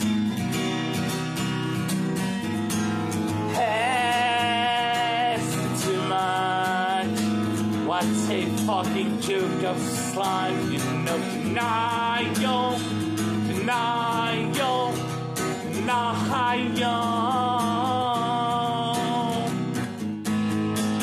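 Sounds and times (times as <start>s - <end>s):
acoustic guitar strummed chords: 0.0s - 21.0s
person singing long notes: 3.5s - 7.1s.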